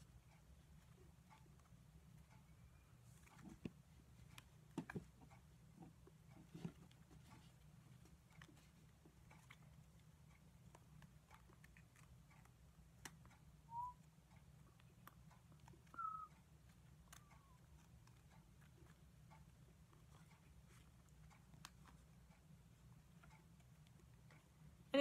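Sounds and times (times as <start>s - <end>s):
short high chirps: 16.0s - 16.3s.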